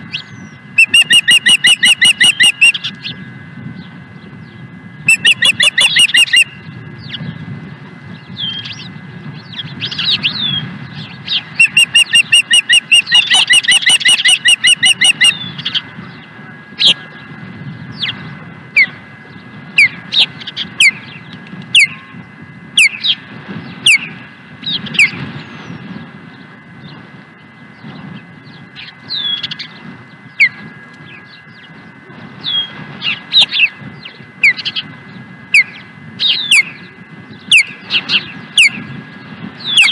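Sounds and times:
ospreys piping chirps: 0.0 - 7.3, 8.1 - 39.9
sharp downslurred bird chirps: 0.2 - 3.2, 5.1 - 6.7, 11.4 - 15.8.

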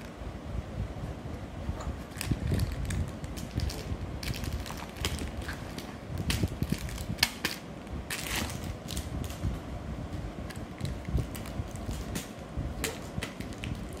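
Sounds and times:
wrappers crinkling: 2.1 - 9.4, 12.9 - 14.0.

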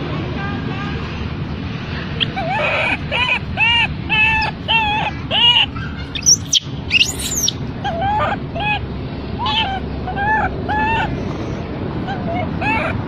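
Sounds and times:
infant monkey whimpering coos: 2.2 - 11.4, 12.0 - 13.0
infant monkey screaming: 2.2 - 13.0.

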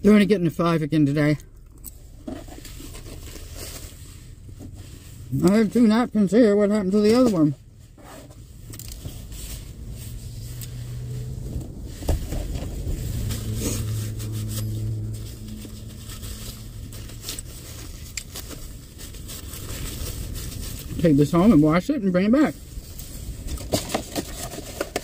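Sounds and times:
paper napkin crinkling: 7.0 - 21.6
low hum: 8.6 - 21.0.

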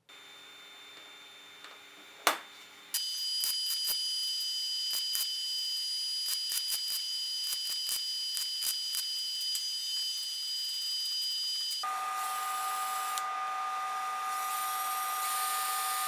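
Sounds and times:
welding arc crackling hiss: 2.9 - 16.0.

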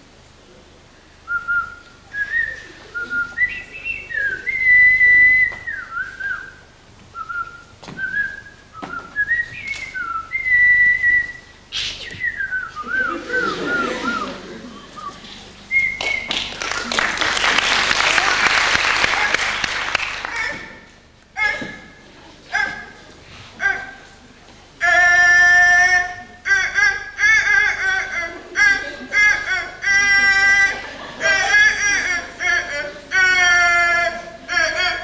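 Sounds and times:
person whistling a tune: 1.3 - 6.6, 7.2 - 14.4, 15.0 - 16.4.

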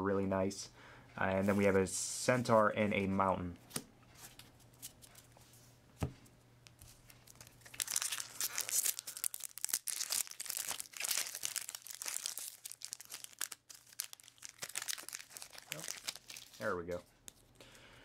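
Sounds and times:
foil wrapper crinkling: 7.2 - 17.5.

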